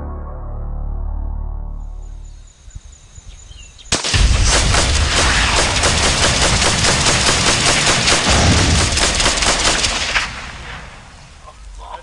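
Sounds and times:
rapid rifle fire: 0:03.9 - 0:11.2.

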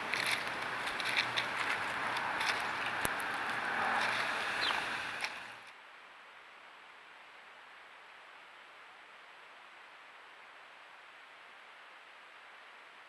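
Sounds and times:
birds pecking at seed: 0:00.0 - 0:05.7
steady rushing background noise: 0:00.0 - 0:07.8
high falling bird chirp: 0:04.4 - 0:05.5.

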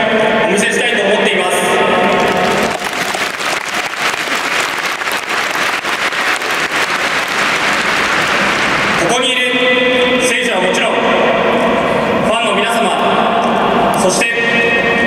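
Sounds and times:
crowd applauding: 0:02.1 - 0:09.2.

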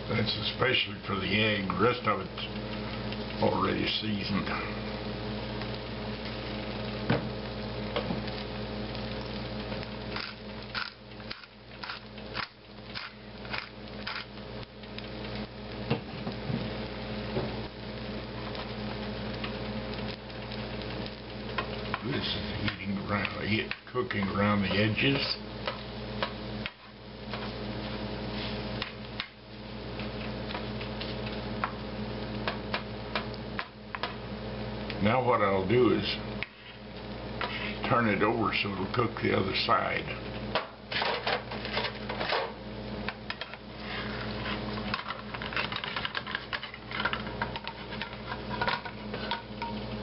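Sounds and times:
food sizzling in a skillet: 0:00.0 - 0:50.0
low steady hum: 0:00.0 - 0:50.0
pepper grinder grinding: 0:10.1 - 0:15.0, 0:44.4 - 0:49.4.

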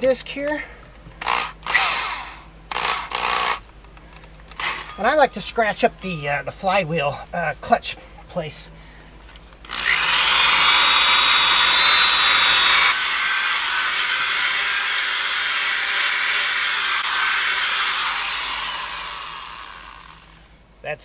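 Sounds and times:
power grinder sanding metal: 0:09.7 - 0:20.5
motor spinning down whine: 0:16.5 - 0:20.5.

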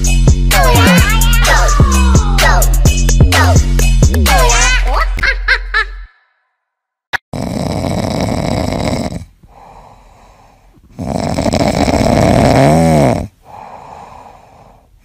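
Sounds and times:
cat snoring: 0:07.4 - 0:09.9, 0:10.9 - 0:13.6.

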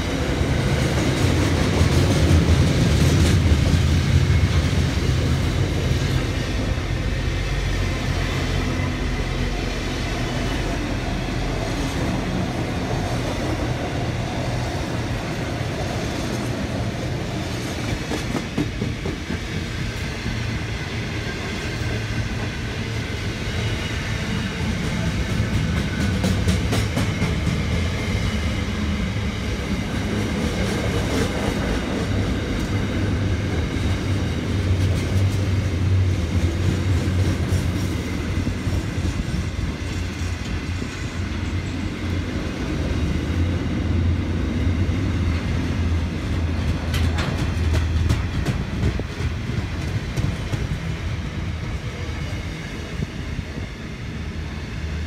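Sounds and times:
train wheels rumbling on rail: 0:00.0 - 0:55.0
wheels clacking over rail joints: 0:46.3 - 0:50.9.

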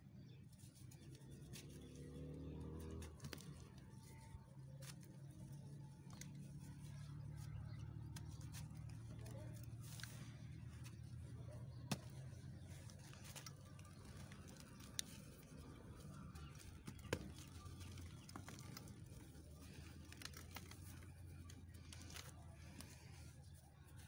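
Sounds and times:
cement crumbling in hands: 0:08.0 - 0:23.2.

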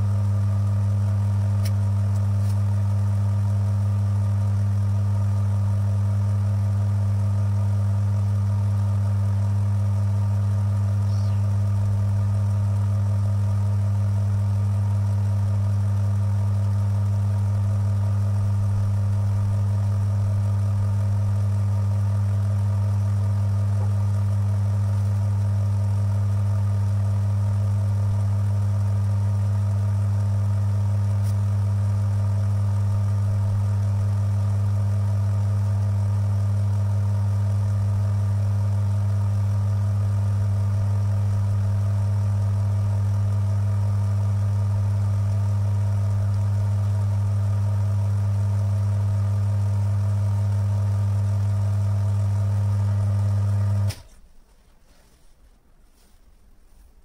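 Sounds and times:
electric motor humming: 0:00.0 - 0:54.0.

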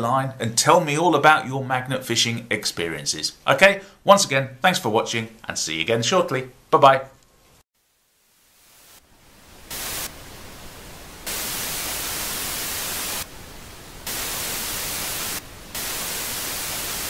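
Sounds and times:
television static hiss: 0:07.8 - 0:17.0.

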